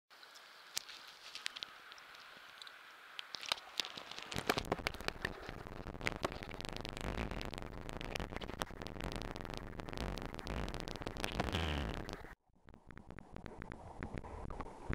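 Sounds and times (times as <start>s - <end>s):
underwater river crackling hiss: 3.8s - 12.4s.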